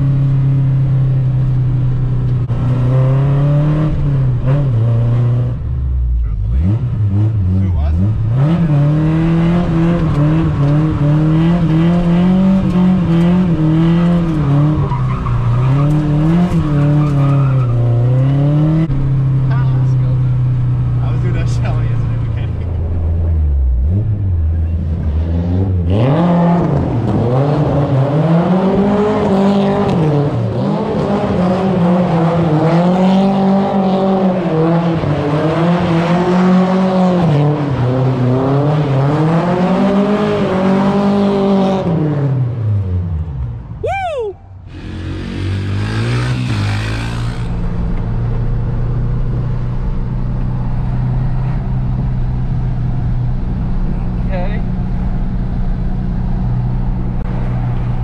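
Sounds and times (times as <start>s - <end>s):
car engine droning while cruising: 0.0s - 58.0s
car engine revving hard: 6.4s - 19.4s, 23.8s - 42.6s, 44.7s - 47.8s.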